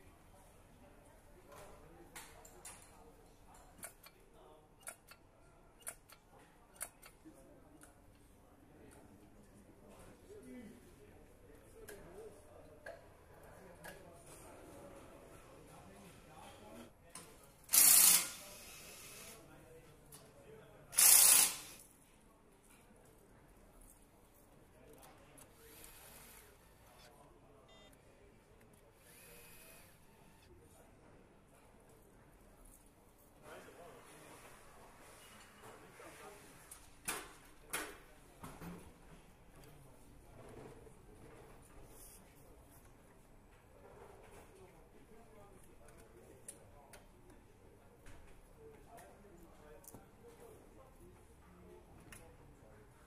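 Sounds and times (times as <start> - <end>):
electric nutrunner whirring: 17.7 - 19.4, 21.0 - 21.8, 29.0 - 30.4
short beep: 27.7 - 27.9.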